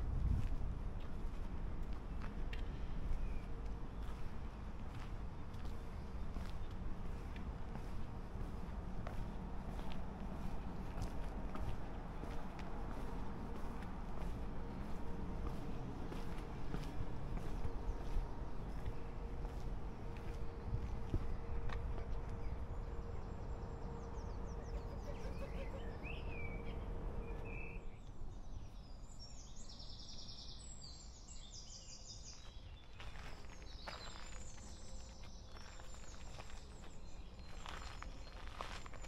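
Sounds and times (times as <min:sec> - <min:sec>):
footsteps on a path: 0:00.0 - 0:26.4, 0:32.1 - 0:39.0
low outdoor rumble: 0:00.0 - 0:29.3
faint hum: 0:00.0 - 0:39.0
birds trilling: 0:23.8 - 0:27.8.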